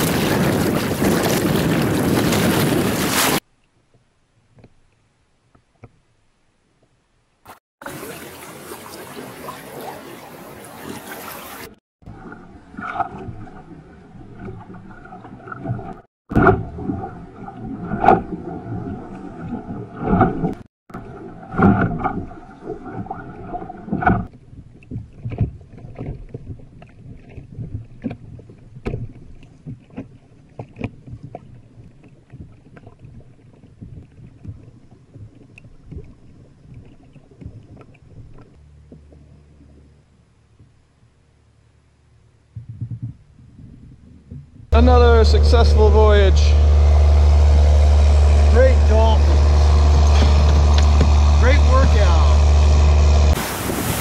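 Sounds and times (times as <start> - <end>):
water slapping against kayak hull: 0.0 - 3.4, 7.5 - 39.8, 53.3 - 54.0
wind hiss: 53.3 - 54.0.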